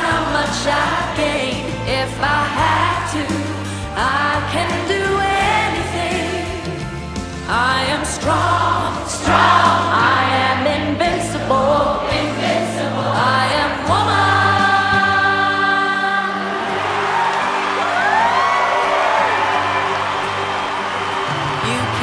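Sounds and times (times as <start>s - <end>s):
lead vocal singing: 0.0s - 17.7s, 21.4s - 22.0s
choir singing: 0.0s - 17.8s.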